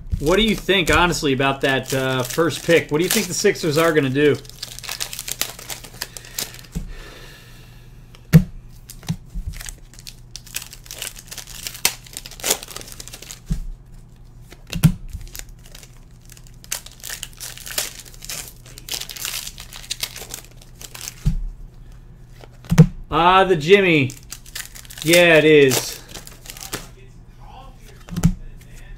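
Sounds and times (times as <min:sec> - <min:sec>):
foil wrappers tearing and crinkling: 0:00.1 - 0:06.8, 0:08.7 - 0:13.5, 0:14.5 - 0:21.2, 0:24.0 - 0:26.9.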